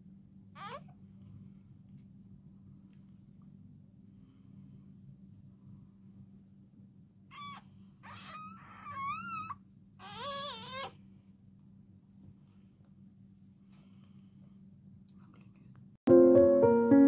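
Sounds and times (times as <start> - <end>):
puppy squealing: 0.6 - 0.9, 7.3 - 11.0.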